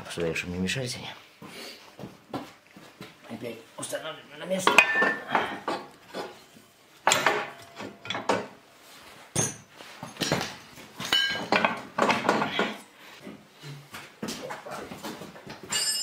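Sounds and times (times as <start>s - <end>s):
steel parts clinking and scraping: 9.4s - 11.8s, 15.7s - 16.0s.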